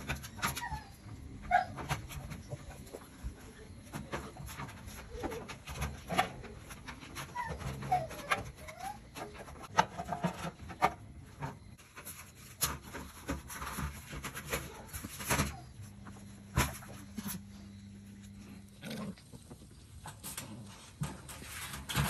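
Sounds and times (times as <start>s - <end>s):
puppy whimpers: 0.0s - 2.7s, 7.0s - 9.4s.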